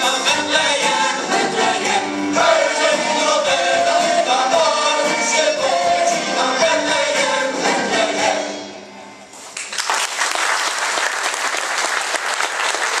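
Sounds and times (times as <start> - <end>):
mixed choir singing a carol: 0.0 - 8.8
audience applause: 9.6 - 13.0.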